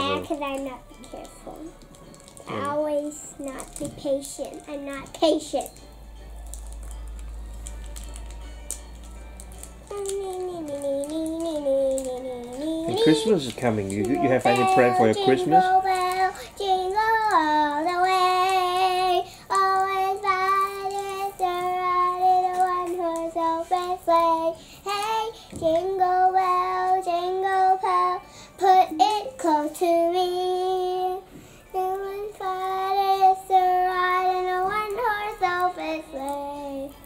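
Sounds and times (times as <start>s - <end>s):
girl singing: 0.0s - 5.8s, 9.8s - 37.0s.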